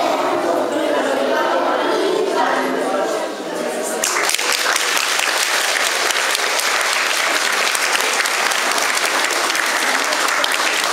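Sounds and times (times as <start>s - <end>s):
audience applauding: 4.0s - 10.9s.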